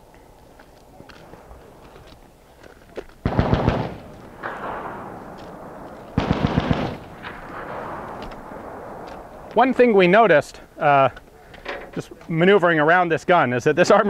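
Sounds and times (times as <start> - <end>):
automatic machine gun fire: 3.2 - 5.2, 6.2 - 8.3
gunfire echo: 3.2 - 10.0.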